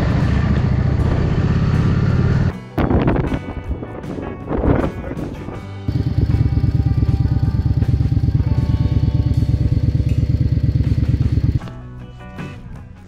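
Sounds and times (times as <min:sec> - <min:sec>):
motorcycle engine running: 0:00.0 - 0:02.5, 0:05.9 - 0:11.7.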